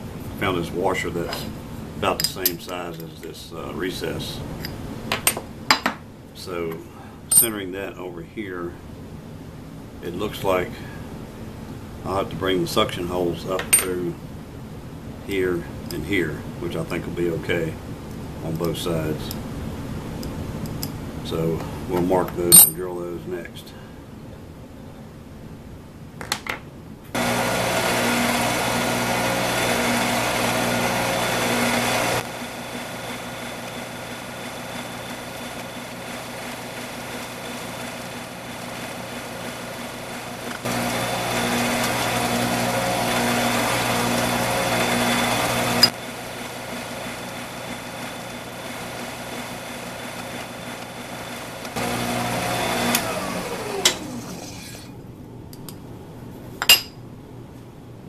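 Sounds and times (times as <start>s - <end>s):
drill press drilling metal: 27.2s - 54.9s
falling whine of spindle slowing: 27.2s - 54.9s.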